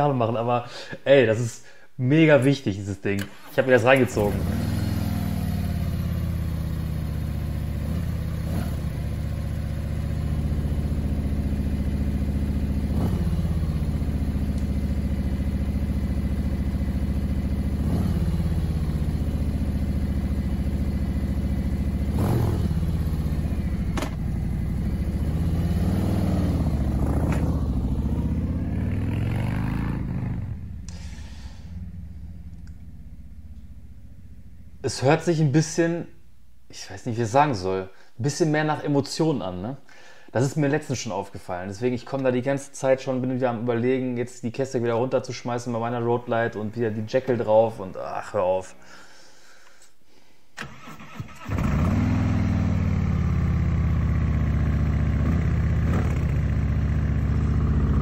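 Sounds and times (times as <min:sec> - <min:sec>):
motorcycle engine revving: 0:04.0 - 0:34.8, 0:50.7 - 0:58.0.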